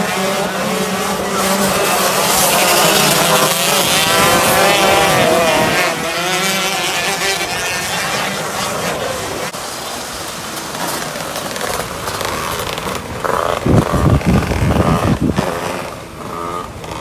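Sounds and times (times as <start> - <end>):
kart engines running: 0.0 - 17.0.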